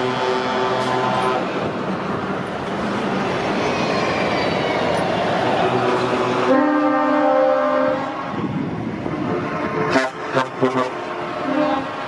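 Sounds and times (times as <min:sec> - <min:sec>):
truck air horn blasts: 0:00.0 - 0:01.5, 0:06.4 - 0:08.2, 0:09.2 - 0:11.9
truck diesel engines running: 0:00.0 - 0:12.0.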